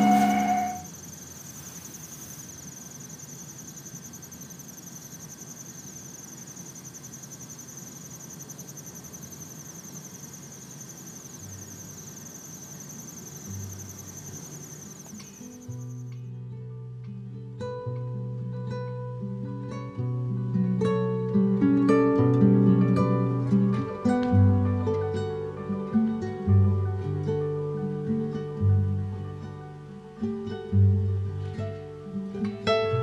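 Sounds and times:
crickets trilling: 0.0 - 16.2.

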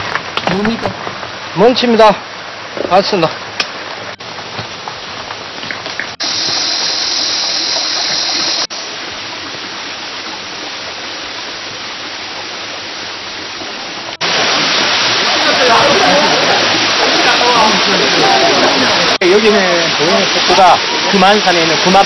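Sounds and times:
mountain stream and waterfall rushing: 0.0 - 22.0.

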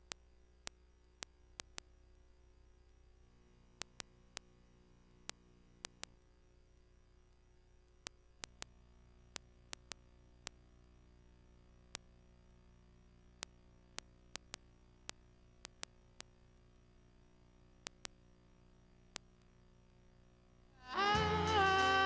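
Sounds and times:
sharp clicks: 0.0 - 1.9, 3.6 - 6.2, 8.0 - 10.6, 13.2 - 16.4, 17.6 - 18.4, 19.0 - 19.6
faint steady hum: 0.0 - 22.0.

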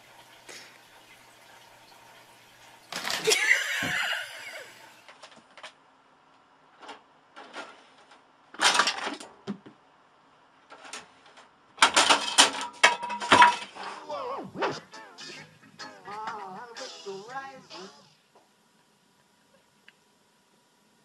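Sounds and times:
hard objects clattering: 11.8 - 13.9.

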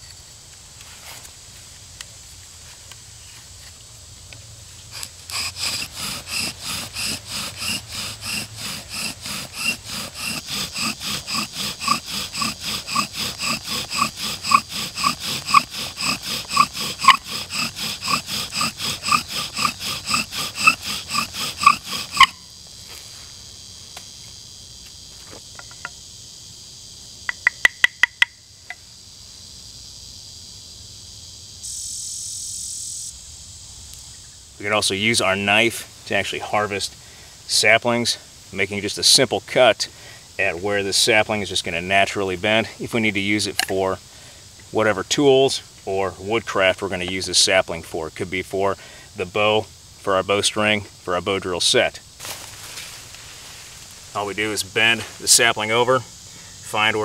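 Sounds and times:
wooden spindle squeaking: 4.9 - 22.4.

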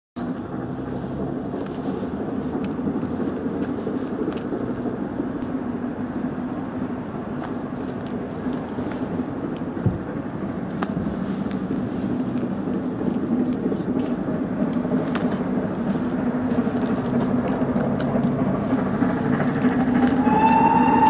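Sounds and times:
distant train rumble: 0.2 - 21.0.

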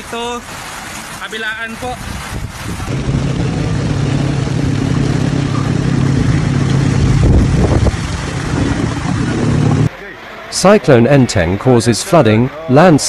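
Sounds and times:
water rushing and splashing: 0.0 - 13.0
motorcycle engine running: 2.9 - 9.9.

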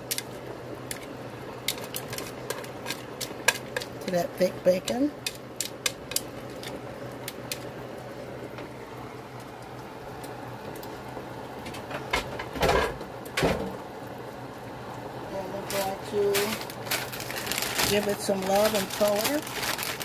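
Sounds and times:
handling knocks and rustles: 15.6 - 20.0.

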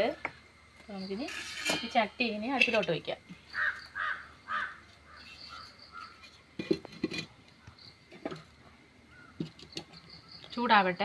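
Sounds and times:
crows cawing: 3.5 - 6.2.

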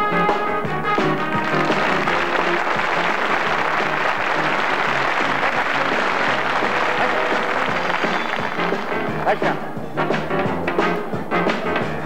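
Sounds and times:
circus band music: 0.0 - 12.0
audience applauding: 1.0 - 9.7.

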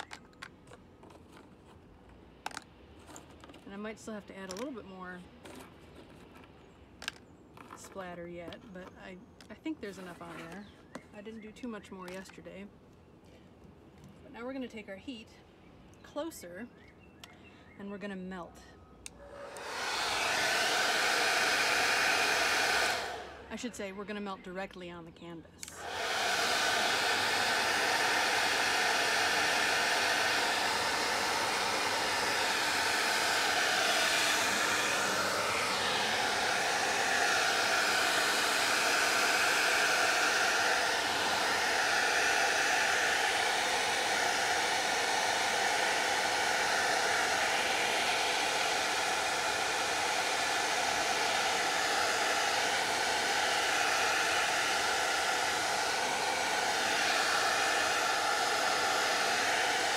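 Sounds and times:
hair dryer blowing: 0.0 - 0.2, 9.6 - 11.0, 19.1 - 24.2, 25.6 - 59.9.

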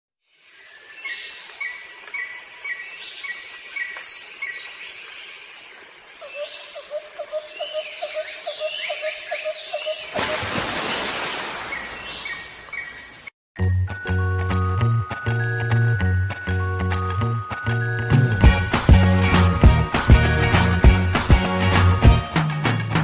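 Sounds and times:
birds chirping: 6.2 - 13.3.

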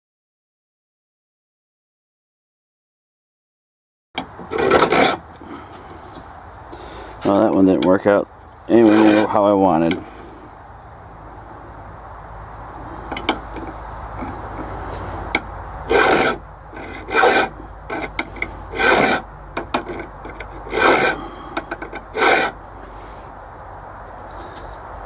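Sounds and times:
file rasping on steel: 4.3 - 6.0, 8.7 - 10.1, 13.1 - 22.6.

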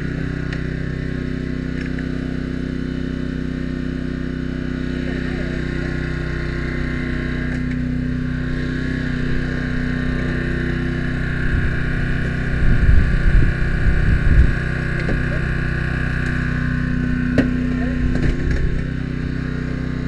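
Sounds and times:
small gasoline engine running: 0.0 - 20.0
heavy low rumbling and bumps: 8.2 - 16.4, 17.1 - 19.0.

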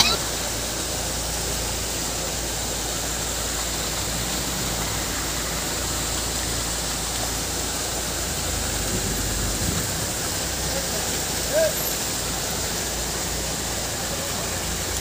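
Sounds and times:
floodwater rushing over rocks: 0.0 - 15.0.

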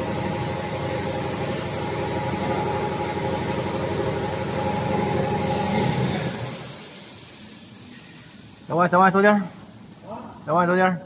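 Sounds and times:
machine rattling and humming: 0.0 - 7.7
hiss: 5.0 - 10.3.

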